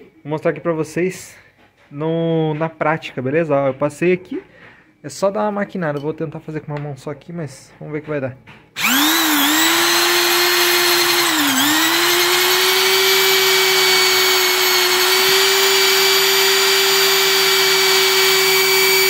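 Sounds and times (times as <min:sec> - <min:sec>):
electric drill motor whine: 0:08.8 - 0:19.0.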